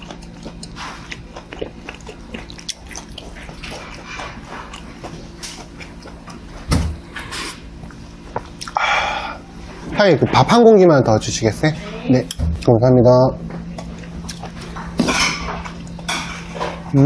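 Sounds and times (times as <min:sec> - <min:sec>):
chewing and slurping: 0:00.0 - 0:08.8, 0:13.6 - 0:16.9.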